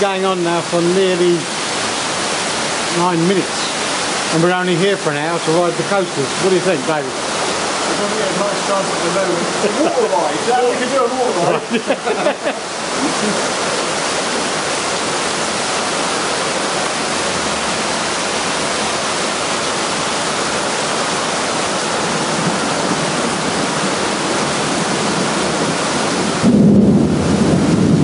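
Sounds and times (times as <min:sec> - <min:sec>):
heavy rain pouring: 0:00.0 - 0:28.0.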